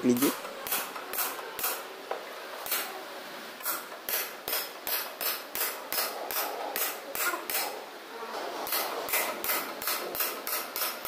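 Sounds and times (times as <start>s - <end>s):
hammer striking chisel: 3.6s - 7.7s, 8.7s - 11.0s.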